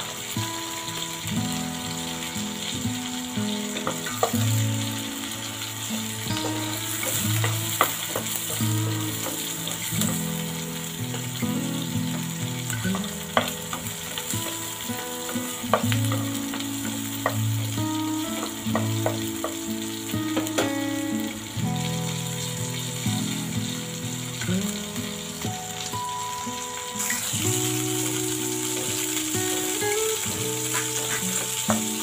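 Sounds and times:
fish frying in oil: 0.0 - 32.0
wooden spatula knocking pan: 3.8 - 4.5, 6.4 - 10.2, 12.9 - 14.6, 15.3 - 17.4, 18.3 - 19.7, 20.3 - 20.8.

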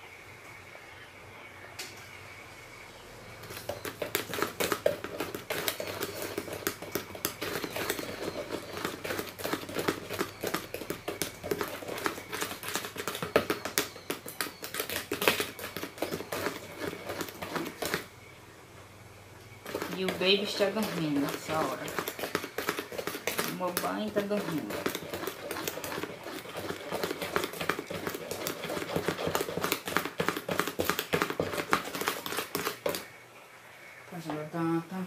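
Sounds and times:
utensil beating batter in bowl: 3.3 - 18.1, 19.5 - 33.2.

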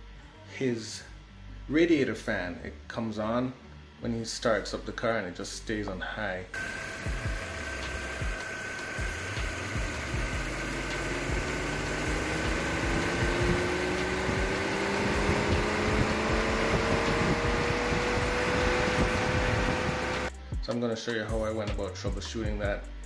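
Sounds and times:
radiator fan whine rising: 6.6 - 20.5.

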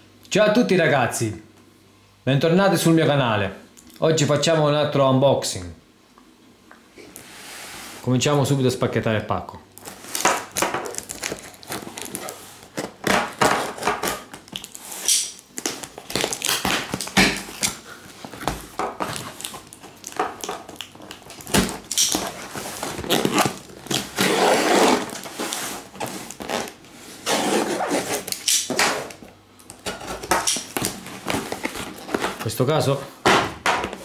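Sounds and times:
tape ripping: 9.8 - 29.2
cardboard rasping: 21.5 - 28.8
box cutter slicing tape: 23.1 - 25.5.

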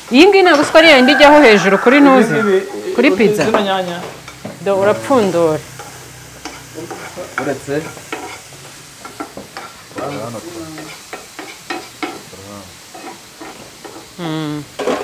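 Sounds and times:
vegetables frying in a pan: 0.0 - 15.0
utensil scraping and knocking pan: 12.9 - 14.0.

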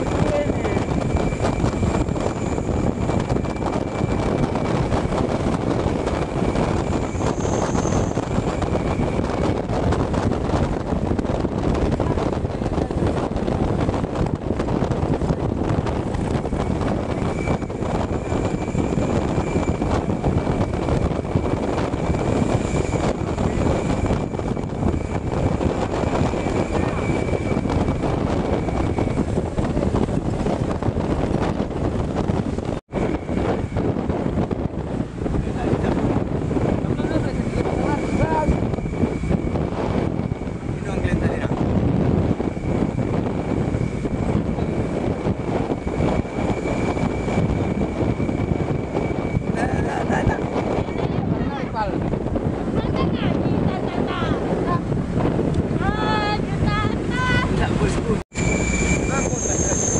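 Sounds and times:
bus and road rumble: 0.0 - 59.9
wind rushing on microphone: 0.0 - 59.9
bus engine drone: 52.3 - 59.9
faint high whistle: 58.3 - 59.9.

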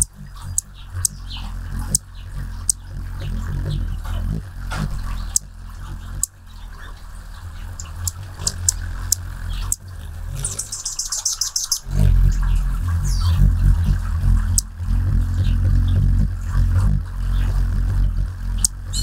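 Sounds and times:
hummingbird wings humming: 0.0 - 19.0
high chip notes: 7.4 - 19.0
fast chattering high notes: 7.9 - 19.0.

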